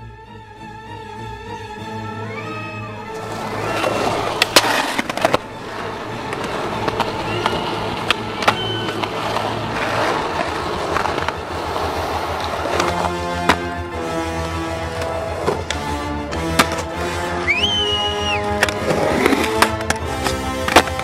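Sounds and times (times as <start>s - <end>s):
skateboard wheels rolling on concrete: 2.2s - 21.0s
skateboard clacks: 3.2s - 13.9s, 14.8s - 17.0s, 17.7s - 21.0s.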